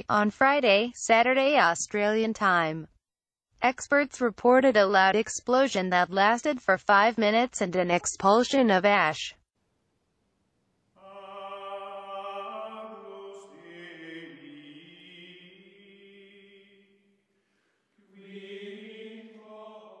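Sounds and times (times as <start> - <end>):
slow chant-like music: 11.0 - 17.0, 18.0 - 20.0.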